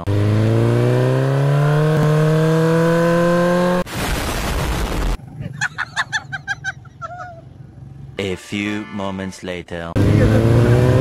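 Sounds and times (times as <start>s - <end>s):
small motorcycle engine accelerating: 0.0s - 3.8s, 10.0s - 11.0s.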